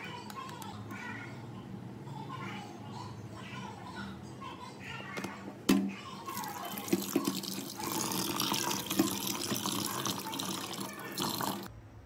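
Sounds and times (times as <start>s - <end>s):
tap water splashing in sink: 6.3s - 11.7s.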